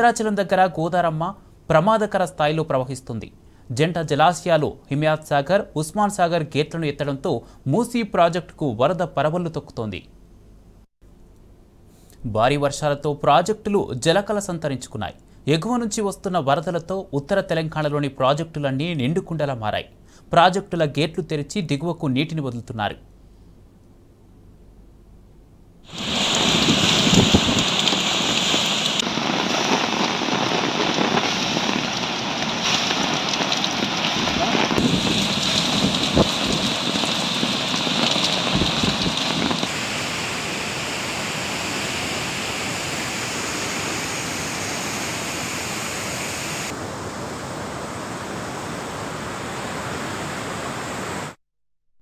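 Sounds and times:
floodwater rushing through spillway: 0:25.9 - 0:51.2.

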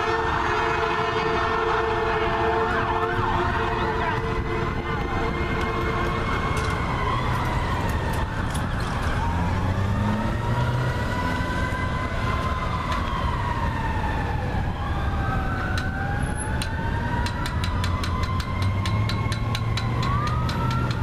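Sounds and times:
fire sirens wailing: 0:00.0 - 0:21.0.

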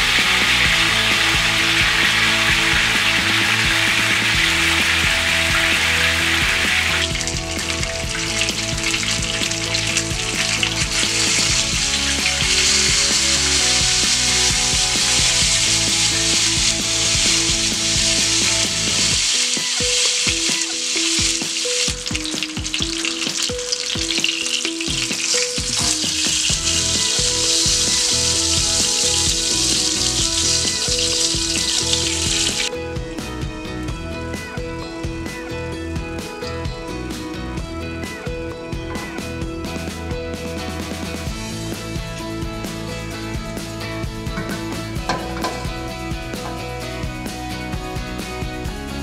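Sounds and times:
oil sizzling in frying pan: 0:00.0 - 0:32.7, 0:44.2 - 0:47.1
background music: 0:00.0 - 0:49.0
utensils clicking against pan: 0:05.9 - 0:32.7.

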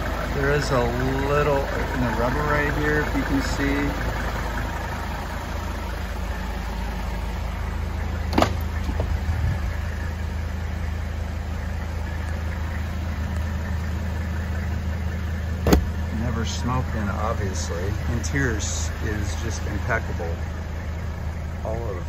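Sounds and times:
diesel engine idling: 0:00.0 - 0:22.0
car door click: 0:08.3 - 0:09.1, 0:15.6 - 0:16.0.

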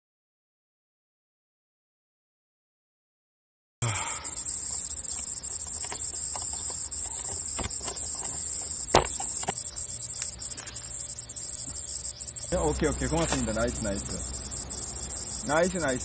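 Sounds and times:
insects chirping: 0:03.8 - 0:16.0.

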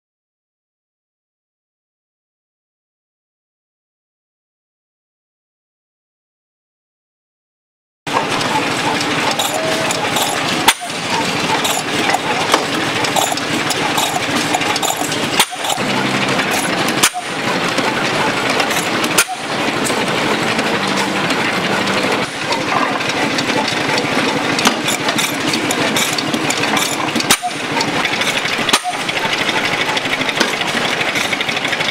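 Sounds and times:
gas engine driving drilling rig: 0:08.1 - 0:31.9.

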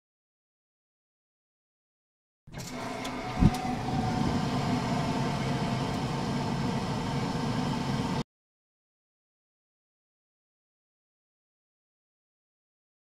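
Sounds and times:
gas heater hissing: 0:02.5 - 0:08.2.

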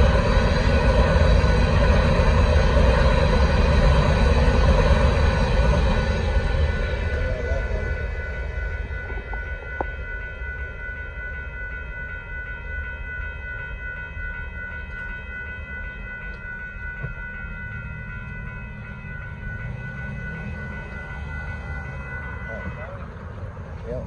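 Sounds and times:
railroad crossing bell ringing: 0:00.0 - 0:24.0
train rumbling: 0:00.0 - 0:24.0.

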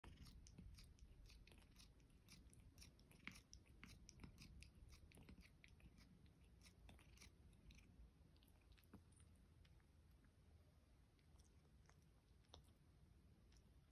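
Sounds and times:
cat mouth clicks and smacks: 0:00.0 - 0:09.9.

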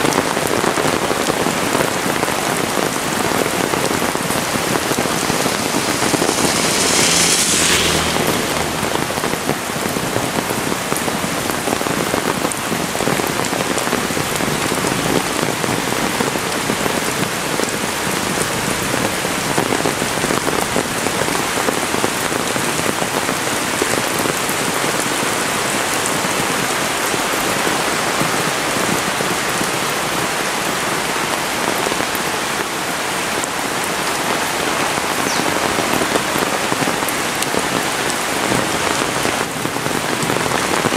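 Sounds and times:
heavy rain falling: 0:00.0 - 0:40.9.

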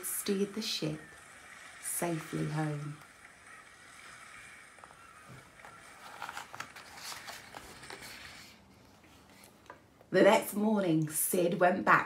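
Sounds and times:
paper page rustling: 0:02.0 - 0:09.8.

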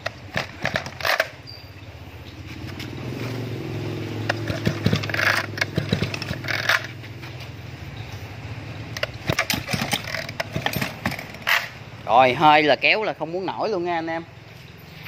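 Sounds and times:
brush-cutter engine starting and idling: 0:00.0 - 0:01.4, 0:04.2 - 0:07.3, 0:08.9 - 0:11.8
handling knocks: 0:04.2 - 0:07.4, 0:09.0 - 0:11.7.

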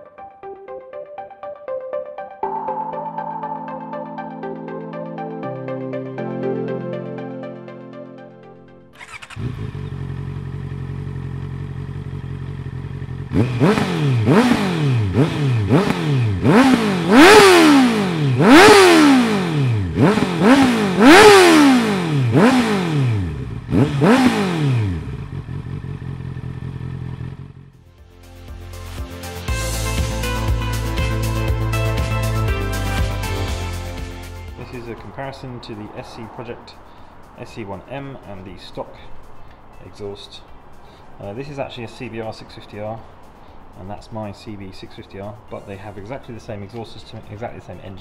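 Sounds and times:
motorcycle engine idling and revving: 0:08.9 - 0:31.4, 0:33.2 - 0:48.0.

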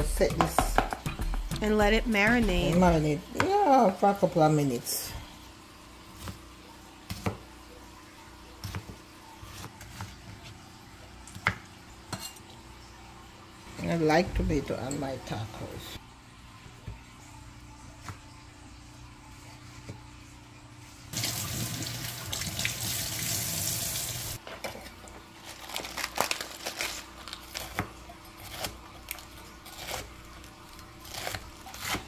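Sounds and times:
faucet running into steel sink: 0:21.2 - 0:24.4.

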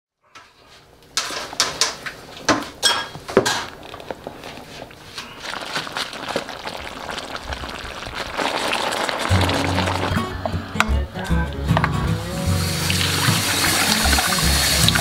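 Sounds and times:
food hissing while cooking: 0:05.7 - 0:10.1, 0:12.2 - 0:15.0.

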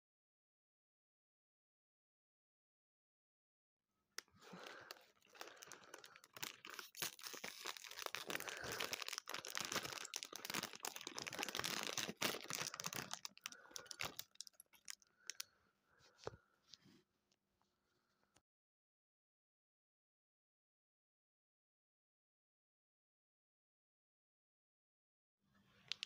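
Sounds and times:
plastic foil bag crinkling: 0:04.4 - 0:15.4.

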